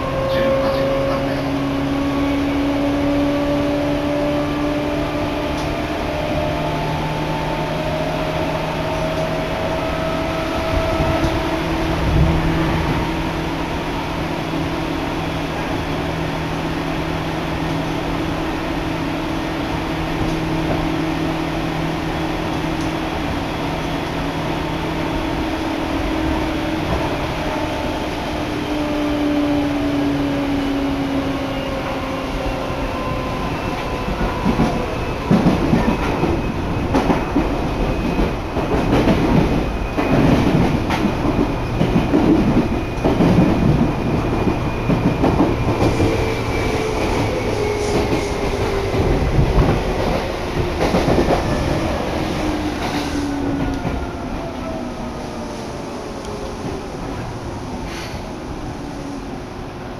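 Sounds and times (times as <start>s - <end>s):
train rumble: 0.0s - 59.9s.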